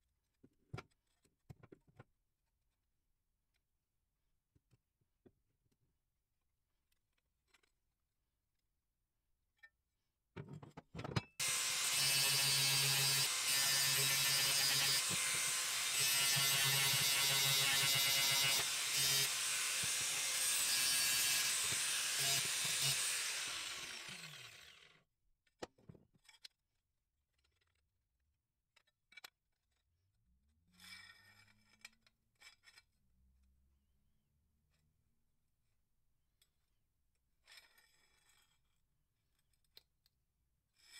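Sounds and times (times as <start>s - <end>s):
angle grinder cutting metal: 11.4s - 25.0s.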